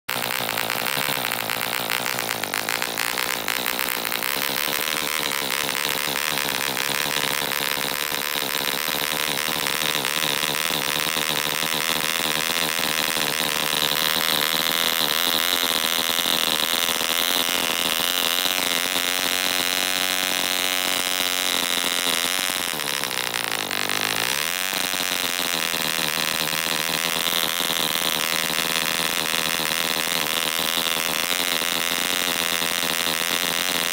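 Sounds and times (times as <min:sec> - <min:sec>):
model diesel engine running: 0:00.0 - 0:33.9.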